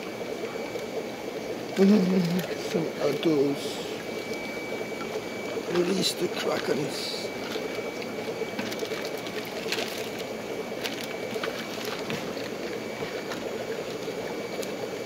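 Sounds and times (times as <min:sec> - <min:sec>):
aquarium filters humming and water: 0:00.0 - 0:15.0
thin high whine: 0:00.0 - 0:15.0.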